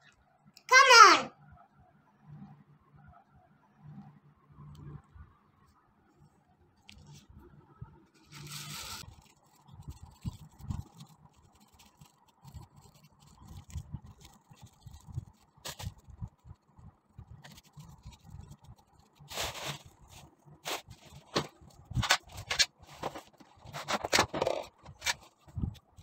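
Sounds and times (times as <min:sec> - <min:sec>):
plastic bags crinkling: 0:08.3 - 0:16.3, 0:17.4 - 0:26.0.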